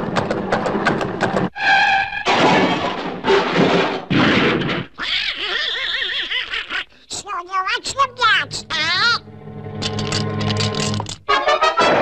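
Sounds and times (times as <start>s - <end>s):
crashing clatter: 2.2s - 4.9s
warbling cartoon cry: 5.0s - 6.9s.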